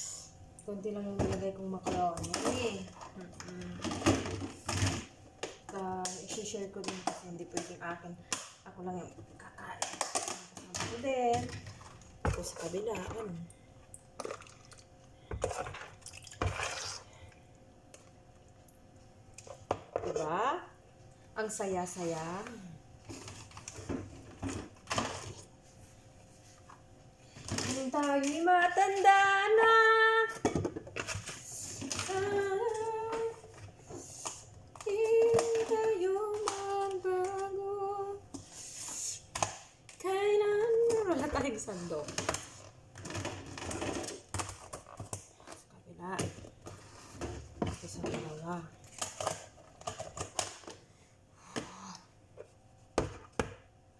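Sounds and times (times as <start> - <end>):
faint steady hum: 0.0 - 53.9
woman humming: 3.2 - 3.9, 32.0 - 33.4.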